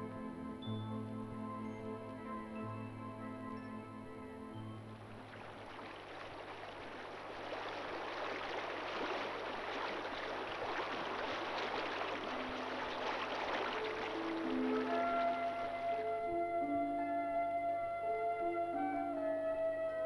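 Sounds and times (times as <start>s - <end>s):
faint music: 0.0s - 20.0s
river rushing over stones: 5.0s - 16.1s.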